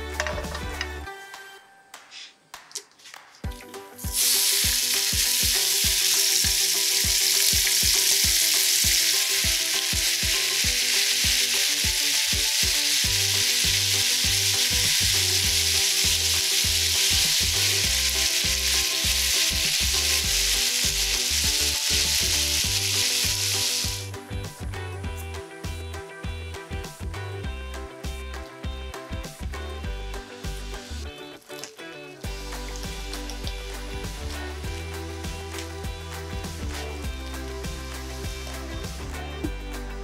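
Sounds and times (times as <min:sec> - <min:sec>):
chicken sizzling in oil: 0:03.9 - 0:24.1, 0:30.3 - 0:39.0.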